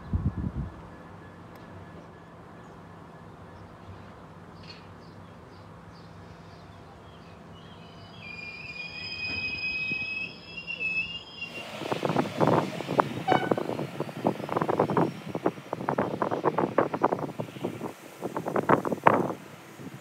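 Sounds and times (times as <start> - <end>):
wind buffeting microphone: 0.0 - 0.9, 11.5 - 20.0
diesel locomotive engine drone: 0.0 - 20.0
wagon wheels squealing: 7.8 - 16.7.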